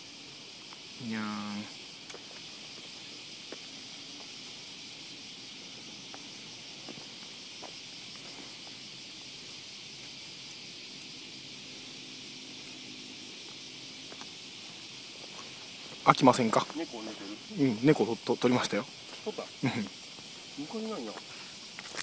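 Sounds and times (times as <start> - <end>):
insect chorus drone: 0.0 - 22.0.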